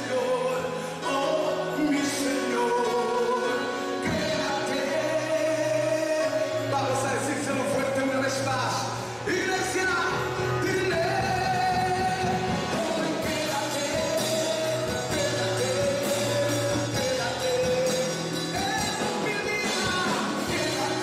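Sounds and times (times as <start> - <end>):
live band playing: 0.0 - 21.0
man singing into a microphone: 0.0 - 21.0
drum kit and cymbals: 10.9 - 21.0.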